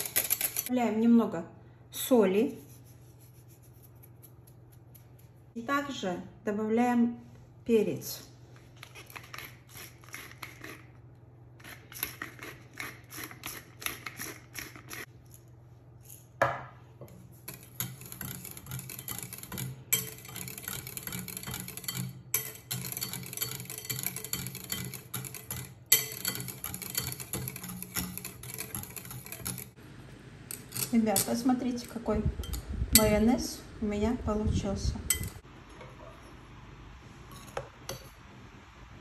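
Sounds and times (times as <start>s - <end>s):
metal whisk scraping a glass bowl: 17.4s - 29.8s.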